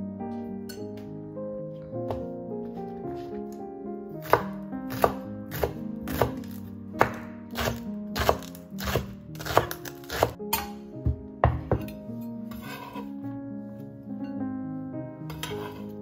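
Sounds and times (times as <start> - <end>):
background music: 0.0 - 16.0
knife chopping on wooden board: 4.2 - 12.0.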